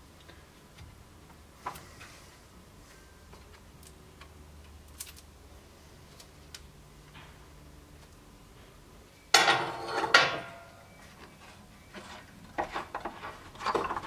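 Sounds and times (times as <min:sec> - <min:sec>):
clamps clicking and clanking: 0:09.3 - 0:10.7
metal clamps clattering: 0:09.3 - 0:10.8.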